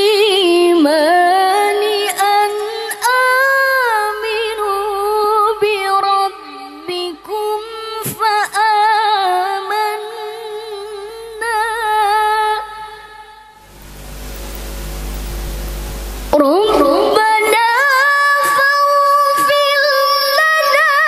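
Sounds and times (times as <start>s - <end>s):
smooth rushing noise: 13.6s - 16.4s
woman chanting melodically: 16.3s - 21.0s.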